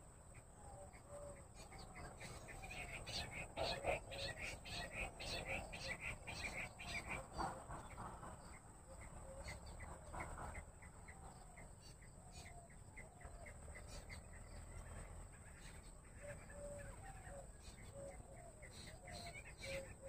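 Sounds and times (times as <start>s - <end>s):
quail calling: 0.0s - 8.0s, 15.4s - 20.0s.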